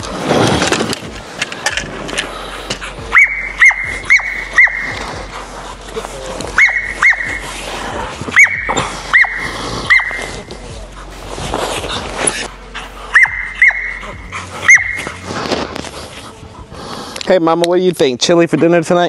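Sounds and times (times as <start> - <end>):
dog yelping whines: 3.1 - 5.0, 6.6 - 7.4, 8.3 - 10.3, 13.1 - 14.0, 14.6 - 15.2.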